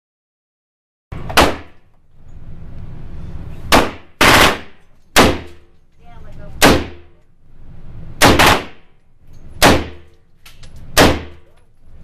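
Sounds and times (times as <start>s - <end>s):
rifle shots echoing: 3.7s - 5.6s, 6.6s - 7.1s, 8.2s - 8.9s, 9.6s - 10.1s, 11.0s - 11.4s.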